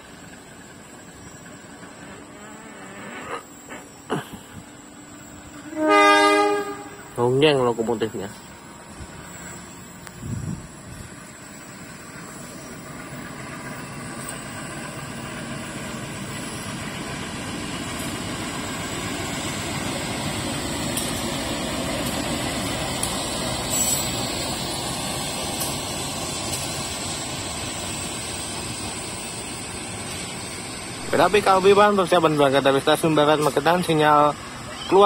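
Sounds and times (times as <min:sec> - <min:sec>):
train engine and wheel rumble: 0:00.0 - 0:35.0
sharp clicks of train wheels: 0:11.1 - 0:34.6.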